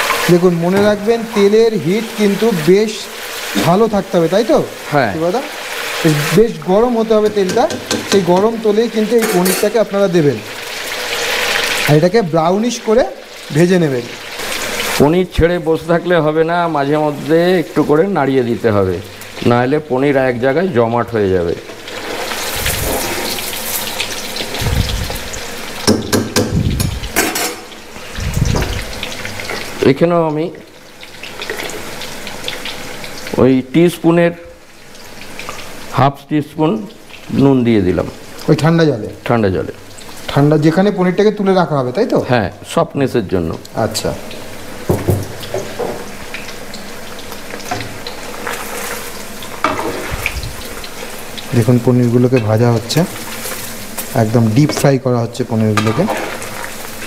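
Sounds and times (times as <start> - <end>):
food deep-frying in oil: 0.0 - 57.0
utensils and crockery clattering: 9.1 - 9.8, 25.8 - 27.8.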